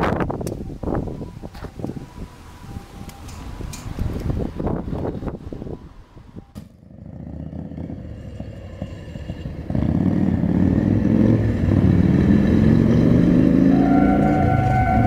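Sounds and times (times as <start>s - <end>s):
cars passing: 0.0s - 15.0s
level crossing warning bell: 0.7s - 6.6s, 11.4s - 15.0s
motorbike passing: 3.5s - 15.0s.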